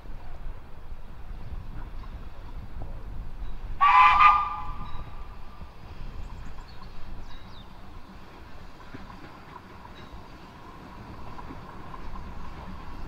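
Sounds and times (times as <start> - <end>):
low locomotive rumble: 0.0 - 13.0
steam whistle blast: 3.8 - 5.1.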